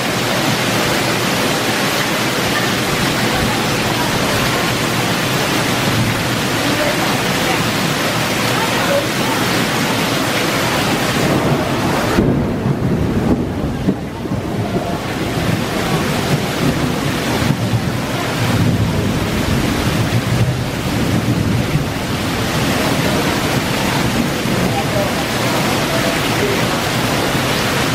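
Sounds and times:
heavy rain downpour: 0:00.0 - 0:27.9
water splashing on tiled patio: 0:00.0 - 0:27.9
wind rumbling on microphone: 0:00.0 - 0:27.9.

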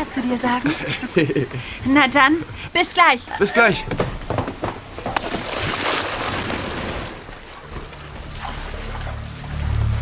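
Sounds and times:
sea water splashing: 0:04.8 - 0:10.0
low music drone: 0:07.4 - 0:10.0.

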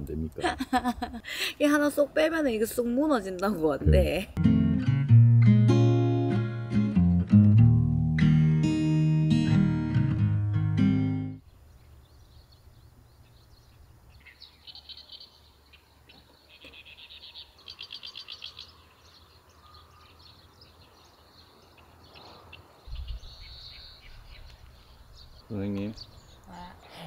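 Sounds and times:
small birds chirping: 0:11.4 - 0:27.0.

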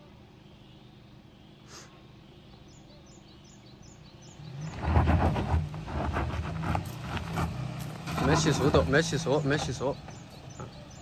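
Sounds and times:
bird chirping: 0:00.0 - 0:05.7, 0:07.9 - 0:11.0
suv engine working hard: 0:00.0 - 0:11.0
tyres crackling on loose dirt: 0:04.5 - 0:11.0.

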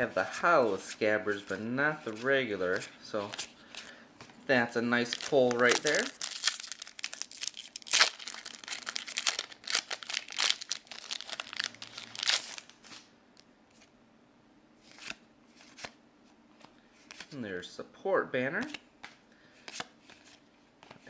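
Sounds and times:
faint rustling of cards: 0:00.0 - 0:14.0, 0:14.8 - 0:17.6, 0:18.4 - 0:21.0
foil wrapper tearing and crinkling: 0:05.0 - 0:12.8.

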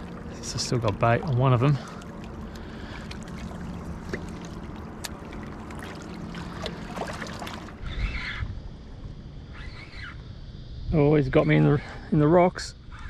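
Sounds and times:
small splashes and clicks: 0:00.0 - 0:07.8
small waves lapping on rocks: 0:00.0 - 0:07.8
steady low rumble: 0:00.0 - 0:09.5.

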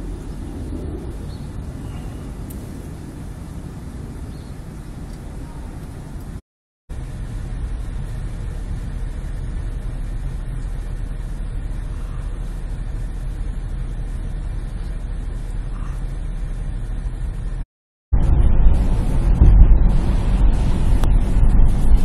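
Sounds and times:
engine idling: 0:05.0 - 0:17.6.

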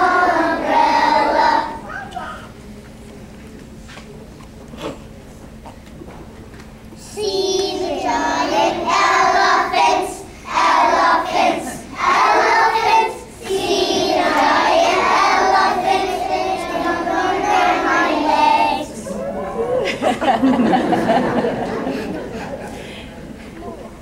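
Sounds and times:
children singing together: 0:00.0 - 0:02.5, 0:07.0 - 0:19.1.

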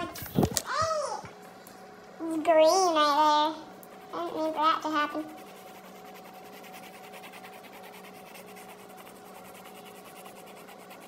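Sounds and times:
faint steady hum: 0:00.0 - 0:11.0
colored pencil scratching on paper: 0:03.8 - 0:11.0.

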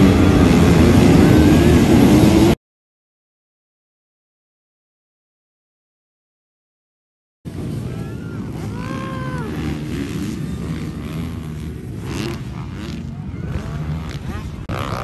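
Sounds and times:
dirt bike engines revving: 0:00.0 - 0:02.6, 0:07.5 - 0:15.0
spectators shouting: 0:07.6 - 0:11.6.

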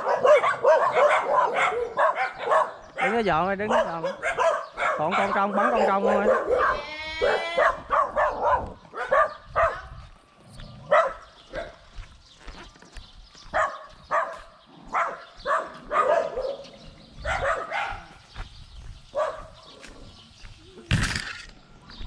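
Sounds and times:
dog barking: 0:00.0 - 0:10.1, 0:10.8 - 0:11.8, 0:13.5 - 0:18.2, 0:19.1 - 0:19.8.

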